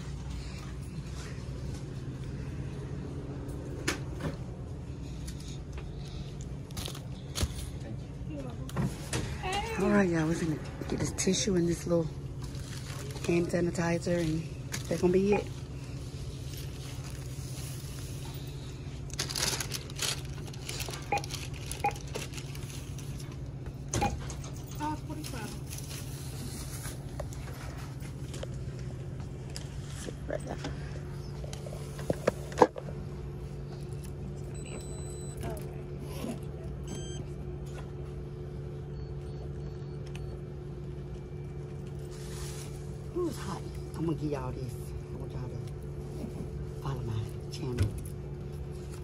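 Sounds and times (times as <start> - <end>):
shop background hum: 0.0 - 49.0
plastic wrap crinkling: 12.4 - 15.0, 19.0 - 23.2.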